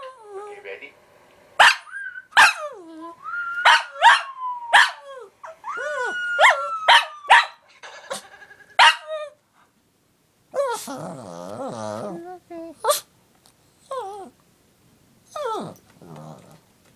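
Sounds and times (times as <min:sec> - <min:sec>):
small dog yipping: 0:01.6 - 0:02.8, 0:03.6 - 0:07.6
dog whining: 0:01.6 - 0:07.6, 0:10.5 - 0:13.1, 0:13.8 - 0:14.4, 0:15.3 - 0:16.6.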